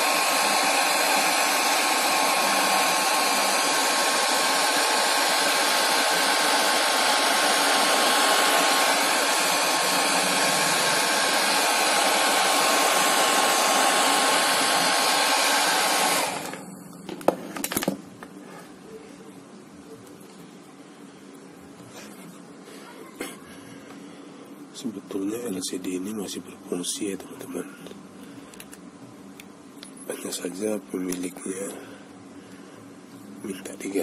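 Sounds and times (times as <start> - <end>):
hair dryer blowing: 0.0 - 16.8
faint steady whine: 0.0 - 34.0.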